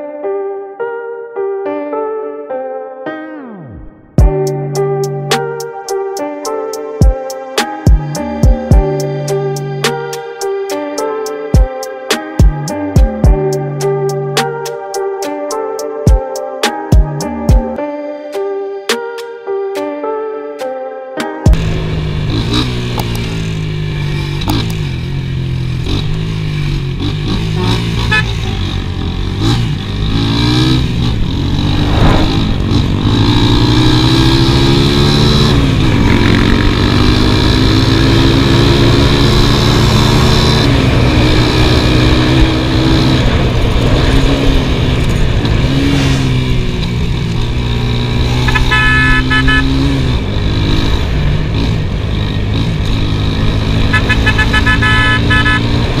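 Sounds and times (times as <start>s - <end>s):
small motorcycle engine revving: 21.5s - 56.0s
vehicle horn short beeps: 27.6s - 28.6s, 48.4s - 50.0s, 53.8s - 56.0s.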